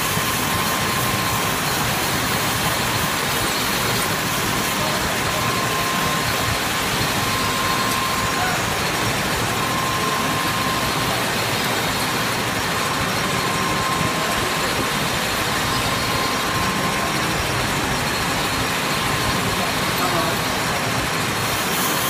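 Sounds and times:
lathe cutting metal bar: 0.0s - 22.0s
thin steady whine: 0.0s - 22.0s.

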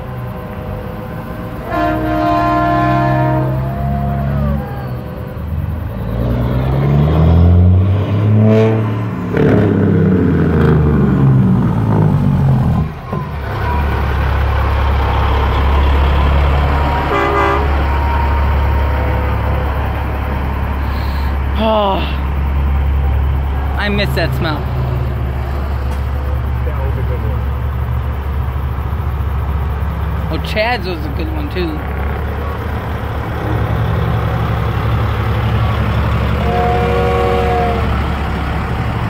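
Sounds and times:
truck diesel engine rumbling: 0.0s - 39.0s
horn notes changing pitch: 1.6s - 5.2s, 15.2s - 20.5s, 36.3s - 38.2s
short horn toot: 17.1s - 18.4s, 36.4s - 38.0s.

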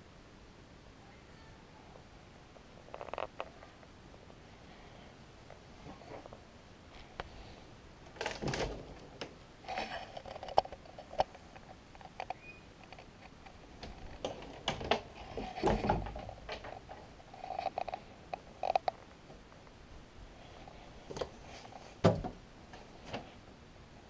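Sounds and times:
closet door clicks and knocks: 8.1s - 9.4s, 13.8s - 16.9s, 22.0s - 22.4s
door rustling scrapes: 12.5s - 18.0s.

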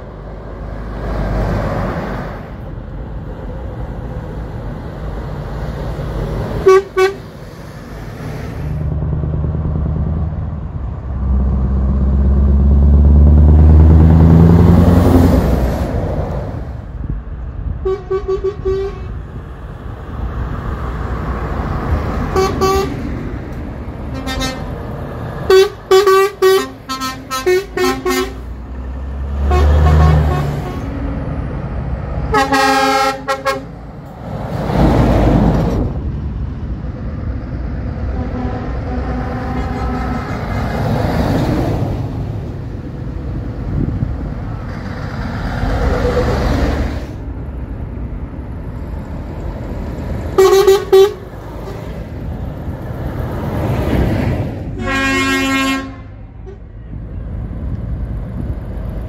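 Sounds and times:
truck diesel engine passing: 0.0s - 59.0s
truck air horn blasts: 6.6s - 7.3s, 17.8s - 19.2s, 22.3s - 23.0s, 24.1s - 24.7s, 25.5s - 28.5s, 29.4s - 31.0s, 32.3s - 33.8s, 38.1s - 40.6s, 50.4s - 51.8s, 54.8s - 56.7s.

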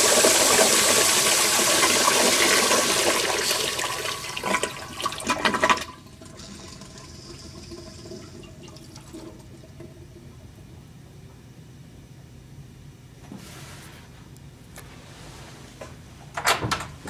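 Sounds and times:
toilet bowl refilling hiss: 0.0s - 10.0s
drain gurgling: 0.0s - 10.5s
toilet flushing: 0.0s - 10.6s.

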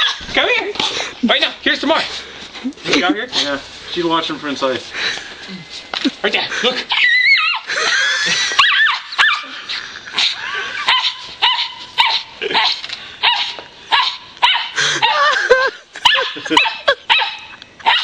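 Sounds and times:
small dog barking: 10.9s - 15.2s, 16.0s - 18.0s.

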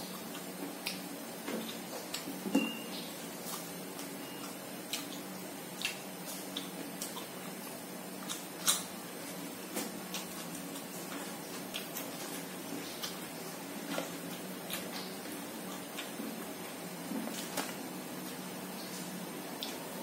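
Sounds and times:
person chewing wetly: 0.0s - 2.4s, 3.0s - 19.9s.

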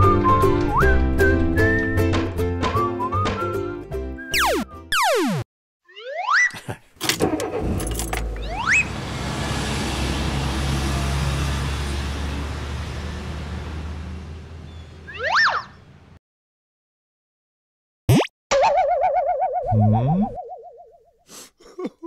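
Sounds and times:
cartoon truck engine: 4.4s - 16.2s.

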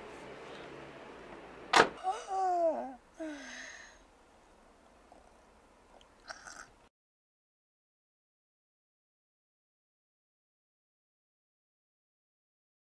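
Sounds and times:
truck door slamming: 1.7s - 2.0s.

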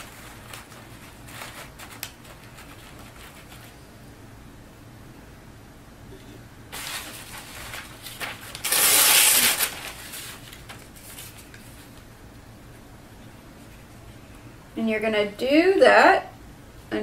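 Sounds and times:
newspaper tearing: 0.0s - 3.7s, 6.7s - 11.5s
newspaper rustling: 0.0s - 3.8s, 6.7s - 12.1s.

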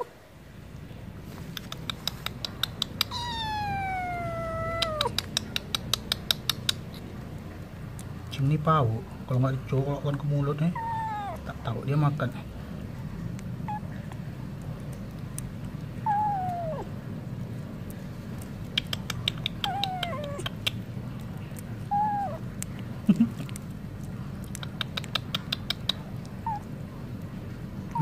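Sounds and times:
low steady hum: 0.0s - 28.0s
kitten licking and chewing: 0.4s - 28.0s
cat meowing: 3.0s - 5.2s, 10.7s - 11.6s, 13.7s - 14.0s, 16.0s - 16.9s, 19.5s - 20.6s, 21.8s - 22.4s, 26.4s - 26.7s.

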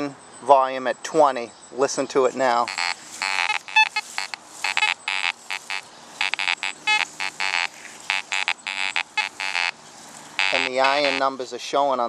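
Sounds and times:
metal detector high beeps: 2.6s - 9.8s, 10.4s - 11.3s
metal detector low buzzy tones: 2.7s - 9.8s, 10.4s - 11.2s.

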